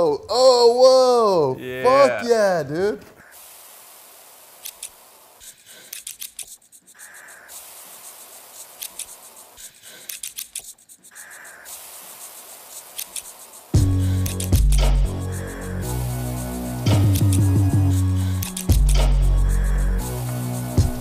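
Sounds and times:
steady hiss: 0.0 - 21.0
scattered clicks: 4.6 - 15.0, 18.4 - 19.2.

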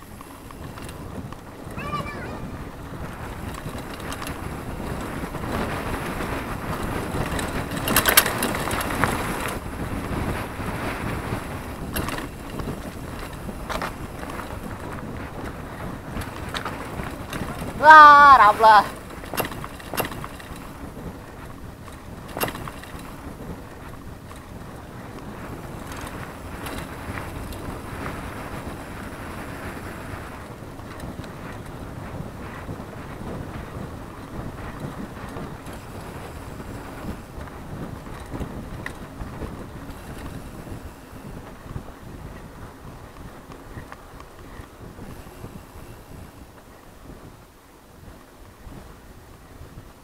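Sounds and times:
bike tyres rumbling over dirt: 0.0 - 1.8, 2.4 - 50.0
wind buffeting the microphone: 0.0 - 50.0
rattling clicks: 7.2 - 9.0, 11.9 - 14.5, 19.0 - 20.6, 21.9 - 23.1.

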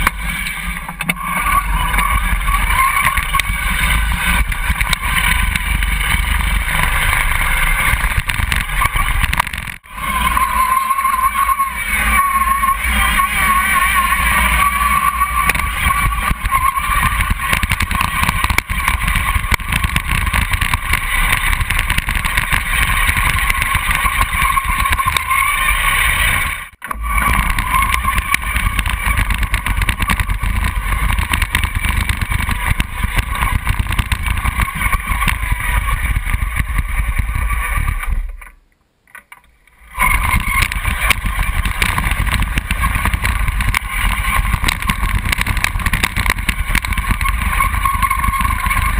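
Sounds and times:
drive motor whine: 0.0 - 38.5
tracks rumbling and rattling: 0.0 - 38.6, 39.4 - 48.9.

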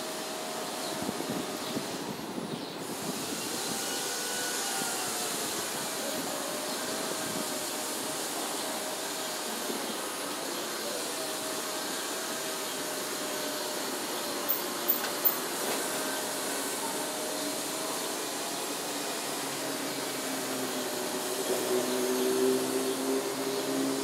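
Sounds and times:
distant traffic noise: 10.0 - 16.9.

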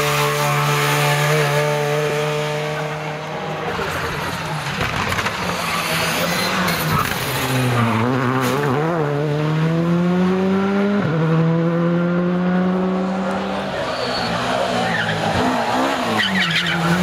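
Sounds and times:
rally car engine accelerating: 0.0 - 17.0.

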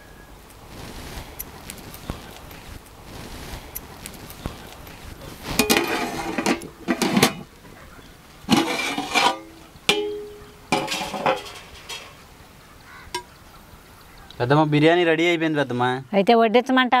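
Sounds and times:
steel lid clanking on pot: 5.6 - 7.5, 8.5 - 12.2.

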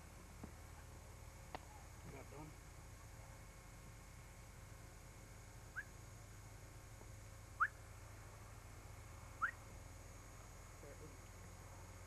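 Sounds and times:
faint steady hum: 0.0 - 12.0
tape hiss: 0.0 - 12.0
rising whistle-like chirps: 5.7 - 6.0, 7.6 - 7.8, 9.4 - 9.6.

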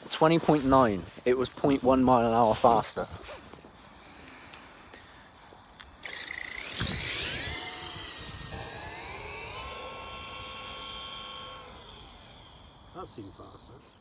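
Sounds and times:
electric motor and gearbox whining: 5.6 - 14.0.

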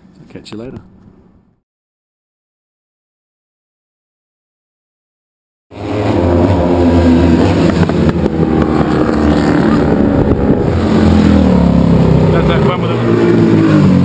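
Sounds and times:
racing engines passing by: 5.7 - 14.0.

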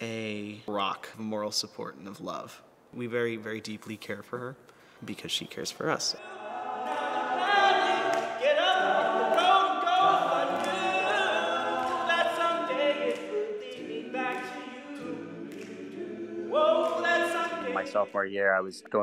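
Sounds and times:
men singing a cappella harmony: 6.2 - 19.0.

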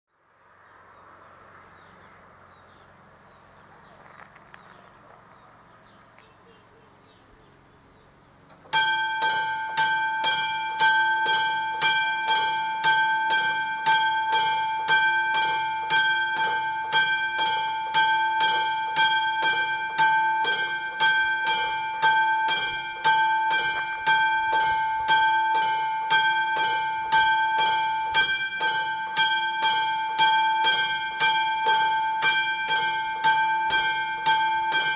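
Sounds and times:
level crossing bell ringing: 8.7 - 34.9.

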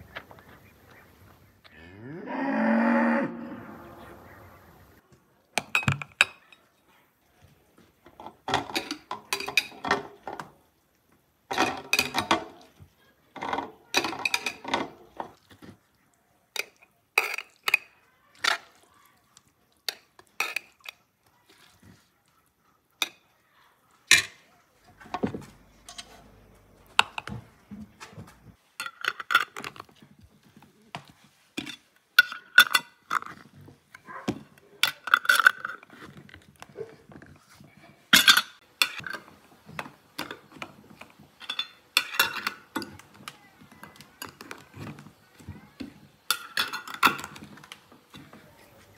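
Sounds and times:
glass jars clinking: 8.2 - 10.3, 11.5 - 12.6, 13.4 - 15.4, 34.8 - 35.9, 41.4 - 43.0, 46.3 - 47.7.

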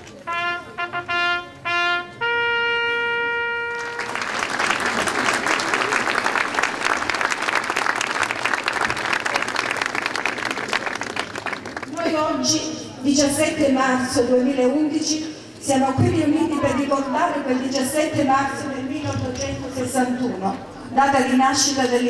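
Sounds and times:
trumpet notes: 0.2 - 4.4
crowd applause: 3.7 - 12.0.

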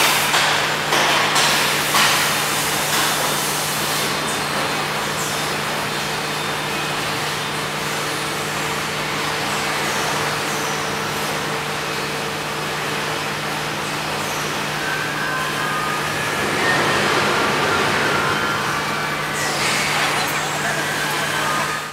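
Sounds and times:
welding line machine hum: 0.0 - 21.9
faint high whines: 13.2 - 21.9
higher tones: 13.5 - 21.9.

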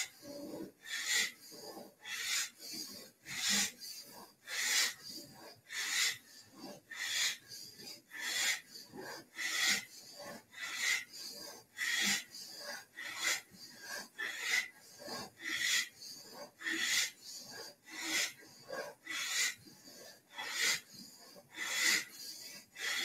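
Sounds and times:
woman breathing forcefully through nose: 0.8 - 1.4, 2.0 - 5.1, 5.7 - 6.2, 7.0 - 23.0.

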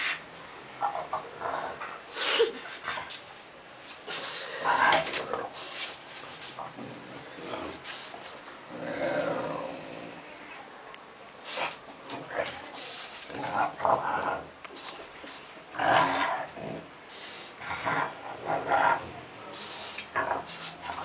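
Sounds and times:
dog growling: 8.7 - 10.6, 15.7 - 21.0.

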